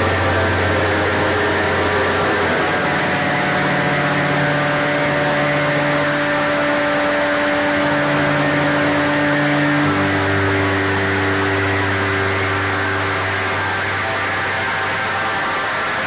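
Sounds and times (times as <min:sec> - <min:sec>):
distorted droning guitar chord: 0:00.0 - 0:16.0.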